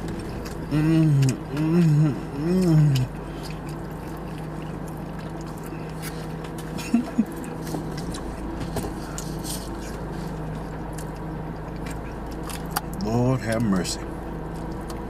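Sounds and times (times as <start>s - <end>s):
clicks and scrapes of eating: 2.6s - 13.0s.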